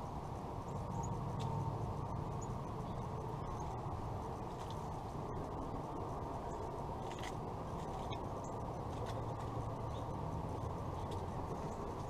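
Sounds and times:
steady low hum: 0.0 - 12.0
bird pecking at seed: 6.6 - 12.0.

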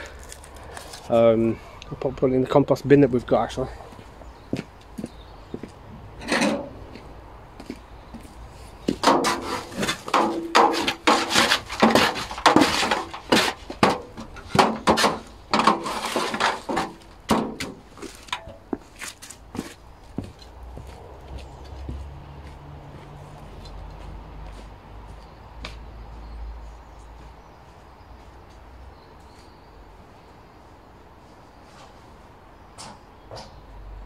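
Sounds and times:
metal shovel scraping ash: 9.0 - 17.1.

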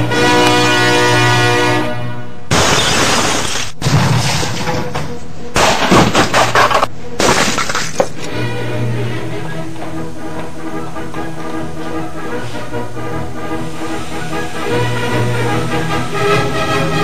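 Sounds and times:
background music with low note: 0.0 - 2.5, 8.2 - 17.0
glass shattering and crashing: 2.5 - 4.8, 5.6 - 8.2.

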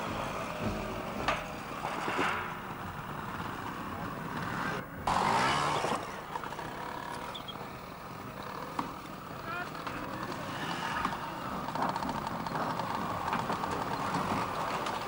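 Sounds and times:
motorcycle engine revving: 2.4 - 15.0
crowd chatter: 6.4 - 13.4.

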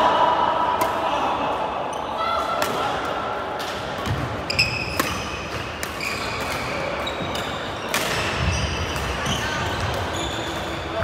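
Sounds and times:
racket hitting shuttlecock: 3.6 - 9.2
sneakers squeaking on wooden floor: 4.1 - 10.9.

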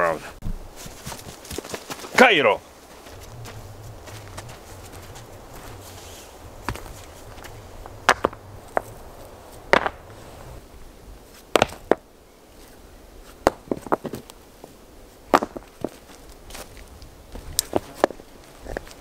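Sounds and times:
stones knocking on stone: 6.6 - 8.9.

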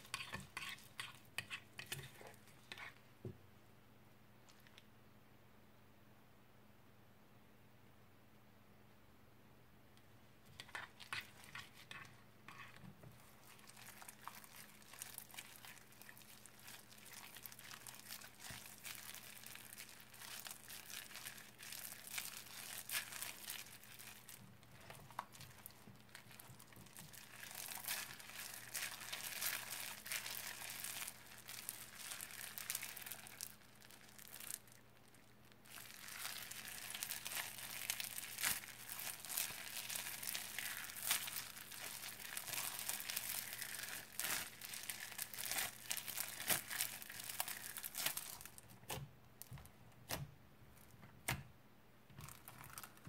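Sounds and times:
crunchy slime crackling and popping: 10.6 - 50.2, 52.2 - 53.0.

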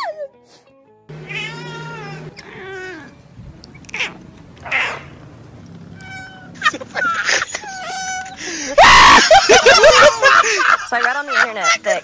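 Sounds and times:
cat meowing: 1.2 - 3.1, 3.8 - 5.0, 5.9 - 8.4.

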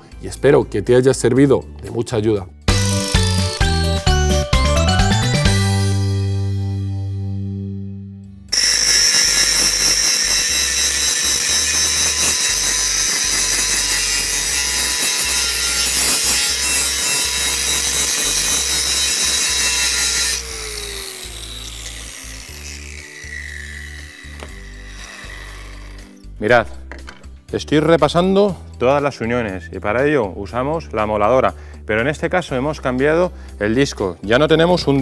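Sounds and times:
motor winding down whine: 2.7 - 3.9, 19.6 - 26.1
angle grinder grinding metal: 2.7 - 4.5, 8.5 - 26.4.

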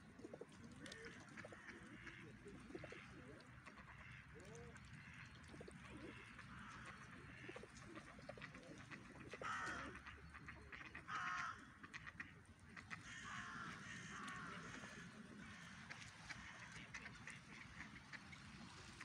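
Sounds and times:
pigeons cooing: 0.1 - 3.8, 5.5 - 11.7.

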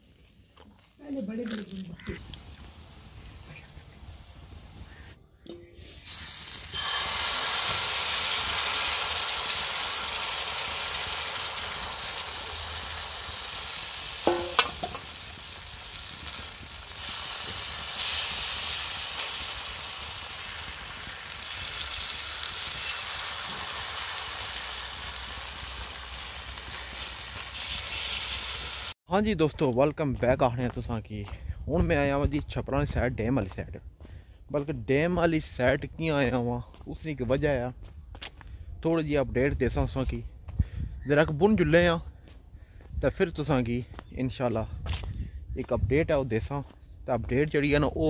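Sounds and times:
pancake sizzling on pan: 6.1 - 29.0.

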